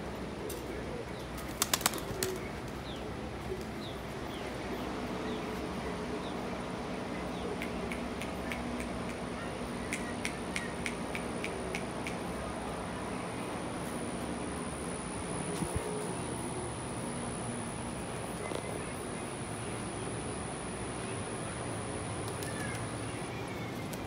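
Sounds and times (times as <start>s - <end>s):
outdoor background noise: 0.0s - 24.0s
pigeon wings clapping: 1.4s - 2.8s, 22.2s - 22.9s.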